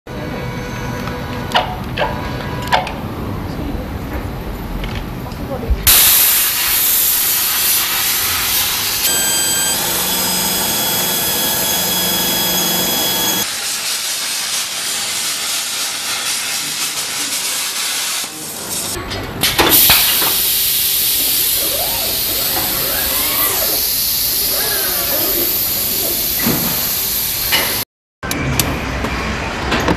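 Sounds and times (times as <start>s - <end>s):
welding and grinding hiss: 5.9s - 19.0s, 19.7s - 27.8s
machine whine with low hum: 8.5s - 13.5s.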